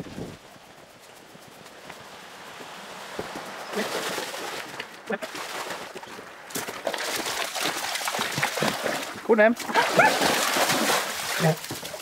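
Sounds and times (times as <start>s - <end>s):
dogs splashing in water: 3.5s - 12.0s.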